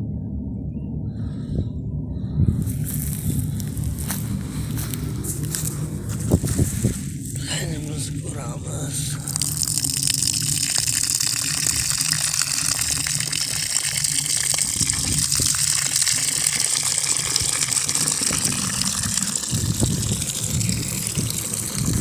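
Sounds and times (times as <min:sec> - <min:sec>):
water gushing onto soil: 0:02.7 - 0:22.0.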